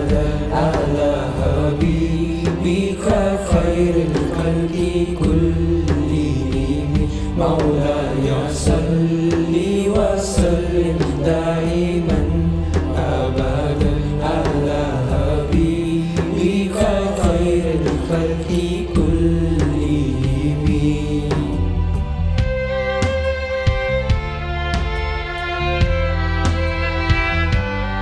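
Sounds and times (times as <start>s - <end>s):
boys singing chant-like melody: 0.0s - 21.9s
backing track with steady beat: 0.0s - 28.0s.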